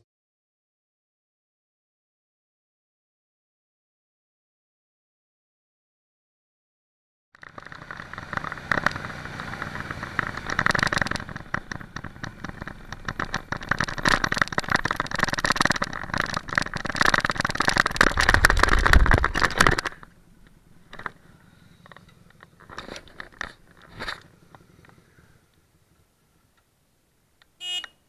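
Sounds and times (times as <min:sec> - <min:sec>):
motorcycle engine running: 0:07.4 - 0:26.0.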